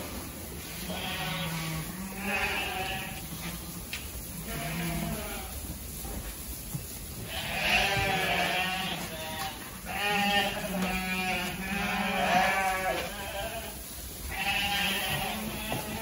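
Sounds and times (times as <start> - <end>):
sheep bleating loudly: 0.8 - 3.3, 4.4 - 5.6, 7.3 - 16.0.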